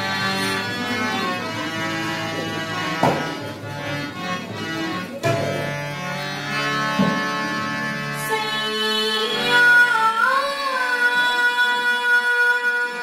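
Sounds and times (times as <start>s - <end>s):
bowed sarangi melody: 0.0s - 13.0s
tabla strokes: 5.2s - 6.0s.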